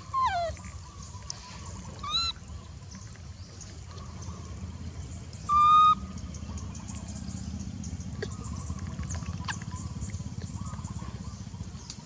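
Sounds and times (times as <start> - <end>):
baby monkey coo call: 0.0 - 1.0, 1.8 - 2.4, 5.5 - 6.1
steady low rumble: 0.0 - 12.0.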